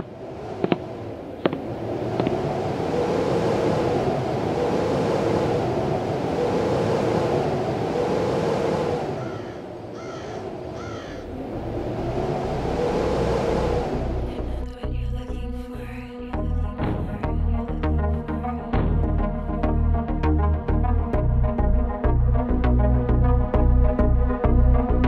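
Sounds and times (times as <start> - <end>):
steady low background noise: 0.0 - 25.0
crow cawing: 9.2 - 11.3.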